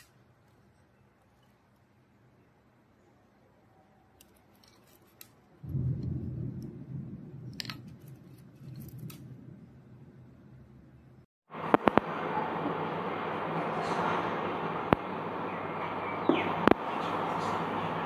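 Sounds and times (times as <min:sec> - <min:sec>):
low rumbling noise: 0:05.6 - 0:18.0.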